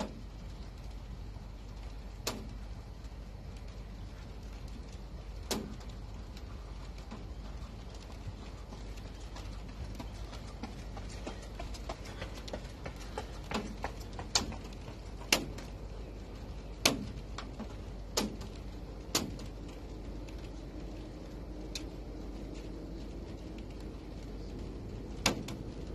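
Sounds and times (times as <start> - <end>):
wind rumble on microphone: 0.0 - 25.9
sharp clicks and knocks: 2.2 - 2.6, 5.4 - 6.4, 9.9 - 15.8, 16.8 - 19.8, 25.2 - 25.7.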